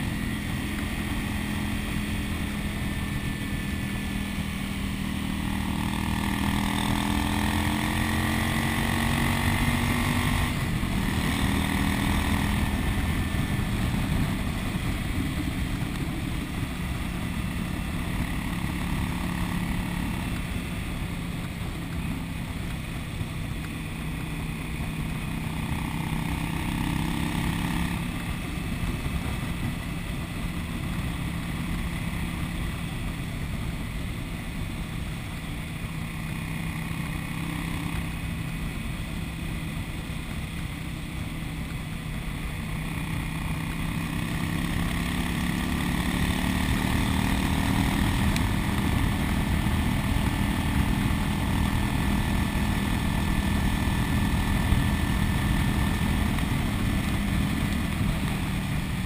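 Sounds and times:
motorcycle engine running: 0:00.0 - 0:59.0
wind and road noise: 0:00.0 - 0:59.0.

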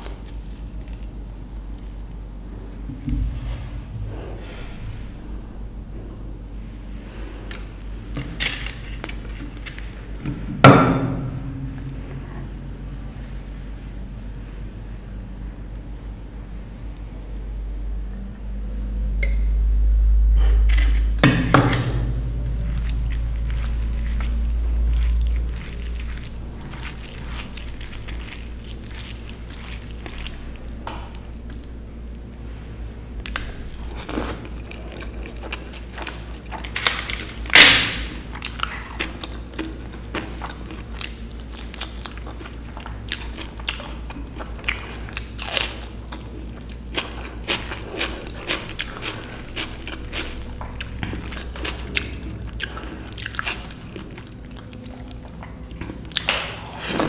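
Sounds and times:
chewing and crunching food: 0:00.0 - 0:02.5, 0:22.6 - 0:57.0
low rumble: 0:01.4 - 0:15.6, 0:17.0 - 0:36.1.

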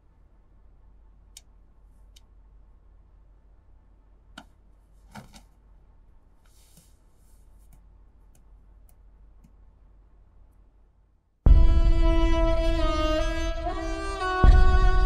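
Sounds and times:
steady low hum: 0:00.0 - 0:15.0
soft rustle: 0:06.3 - 0:07.9.

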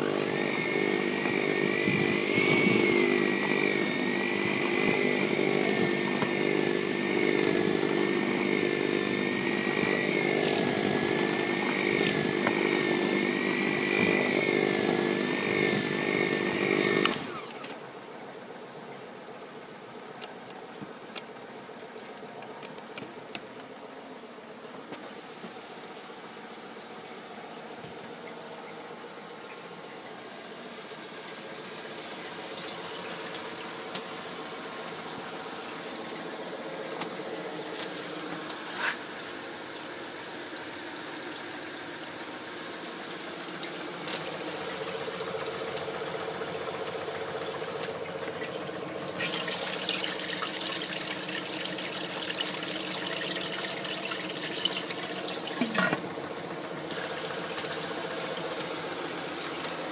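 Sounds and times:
compressor hum with whine: 0:00.0 - 0:59.9
coolant splashing hiss: 0:28.4 - 0:59.9.

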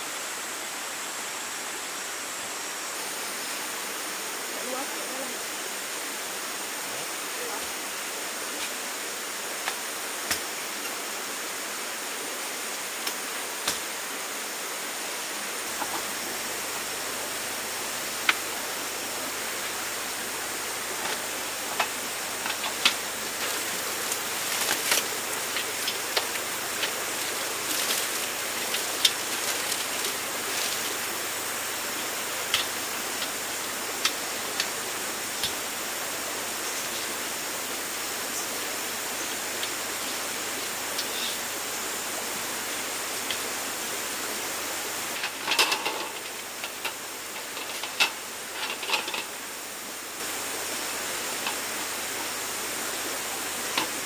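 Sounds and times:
rocky stream rushing: 0:00.0 - 0:54.0
metal camp table clicks: 0:45.2 - 0:49.3.

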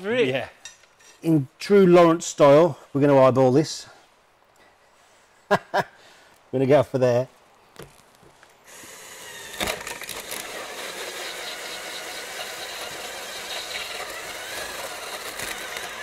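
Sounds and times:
power drill boring through fibreglass: 0:08.7 - 0:16.0.

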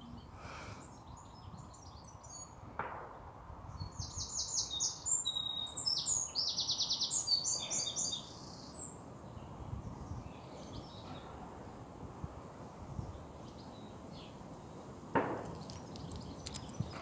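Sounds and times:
songbird singing trills: 0:03.7 - 0:11.3.

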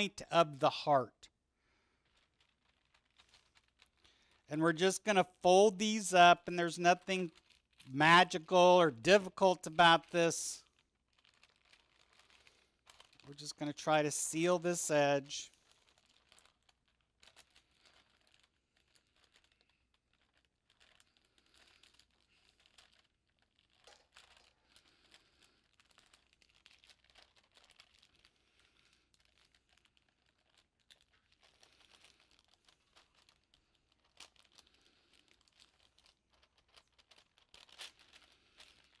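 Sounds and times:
parchment paper crinkling: 0:01.7 - 0:39.0.

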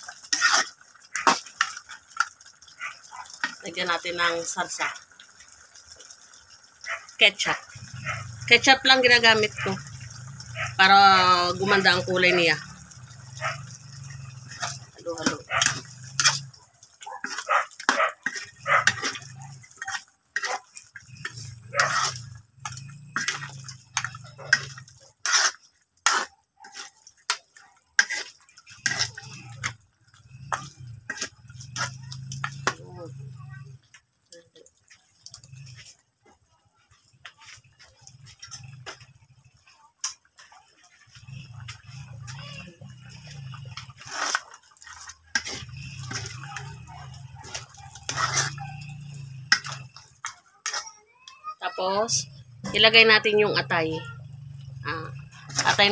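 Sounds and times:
stew simmering: 0:00.0 - 0:55.9
metal ladle scraping wok: 0:00.1 - 0:02.4, 0:07.8 - 0:16.6, 0:17.2 - 0:32.8, 0:37.2 - 0:50.9, 0:54.6 - 0:55.9.

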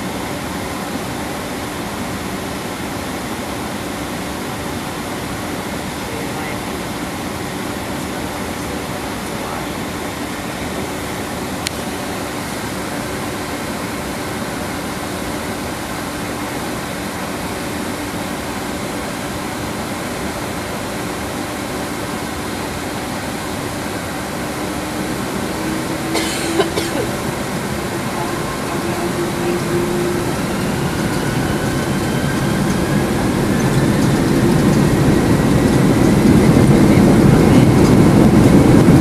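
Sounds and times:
jet engines at low power: 0:00.0 - 0:39.0
cabin air noise: 0:19.7 - 0:39.0.

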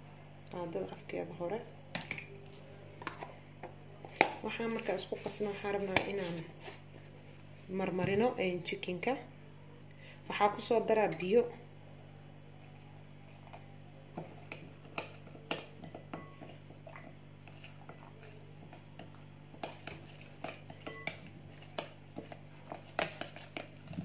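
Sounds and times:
faint steady hum: 0:00.0 - 0:24.0
hand mixing food in glass bowl: 0:02.0 - 0:08.8, 0:12.4 - 0:24.0.

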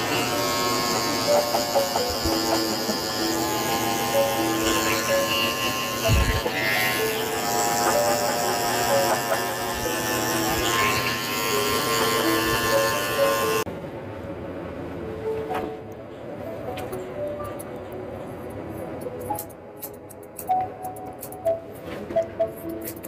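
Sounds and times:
background music: 0:00.0 - 0:13.7, 0:15.0 - 0:23.0
electric clippers buzzing: 0:00.0 - 0:13.7.

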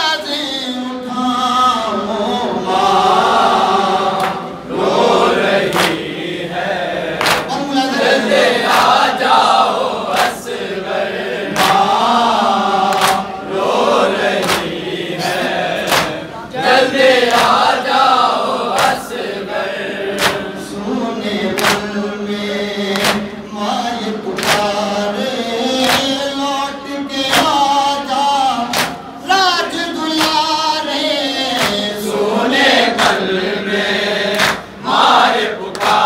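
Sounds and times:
man reciting into a microphone: 0:00.0 - 0:04.7, 0:06.2 - 0:13.4, 0:20.3 - 0:34.9
men chanting a lament: 0:00.0 - 0:36.0
chest-beating slaps in unison: 0:04.2 - 0:04.4, 0:05.6 - 0:06.1, 0:07.2 - 0:07.6, 0:08.6 - 0:10.6, 0:11.5 - 0:12.0, 0:12.8 - 0:13.3, 0:14.2 - 0:14.8, 0:15.8 - 0:16.2, 0:17.2 - 0:17.8, 0:18.7 - 0:19.3, 0:20.1 - 0:20.6, 0:21.5 - 0:22.0, 0:22.9 - 0:23.4, 0:24.3 - 0:24.8, 0:25.8 - 0:26.2, 0:27.2 - 0:27.7, 0:28.6 - 0:29.2, 0:30.1 - 0:30.5, 0:31.5 - 0:32.0, 0:32.8 - 0:33.3, 0:34.3 - 0:34.8, 0:35.6 - 0:36.0.

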